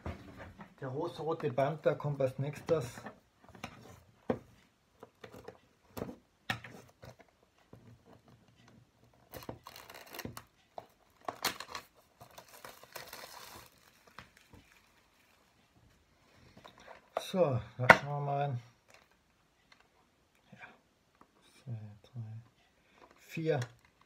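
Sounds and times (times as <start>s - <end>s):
packaging tearing and crinkling: 9.4s - 10.4s, 11.2s - 14.5s.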